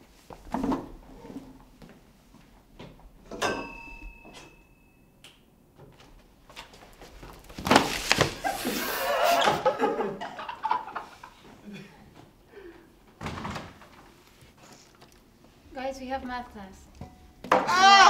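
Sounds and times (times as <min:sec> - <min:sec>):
crash and clatter of chairs: 0:00.4 - 0:01.0, 0:07.4 - 0:08.8, 0:13.2 - 0:14.1.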